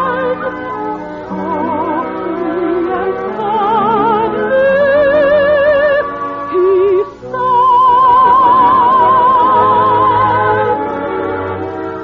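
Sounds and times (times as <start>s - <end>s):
soprano singing opera: 0.0s - 11.1s
orchestra playing: 6.2s - 12.0s.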